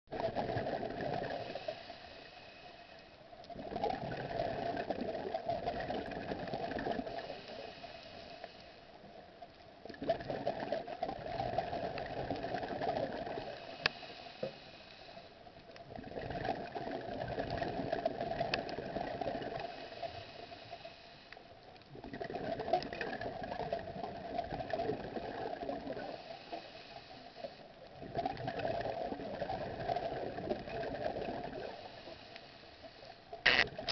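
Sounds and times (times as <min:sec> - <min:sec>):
diver breathing underwater: 0:01.2 - 0:03.1, 0:06.9 - 0:08.8, 0:13.4 - 0:15.3, 0:26.0 - 0:27.6.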